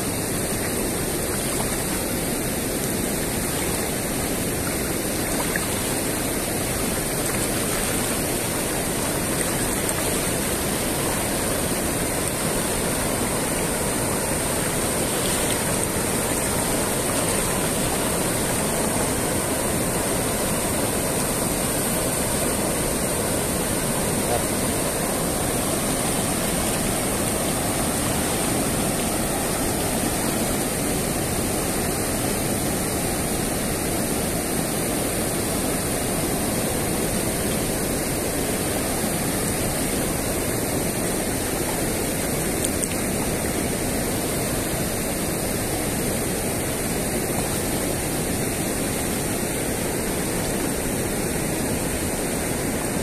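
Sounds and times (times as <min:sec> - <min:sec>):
river water rushing over weir: 0:00.0 - 0:53.0.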